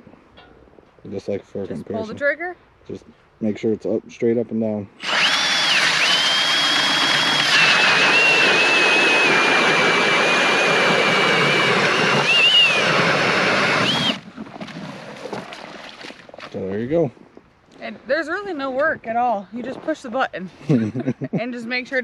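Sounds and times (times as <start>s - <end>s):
drill motor whine: 5.0s - 14.2s
auger grinding through ice: 5.0s - 15.6s.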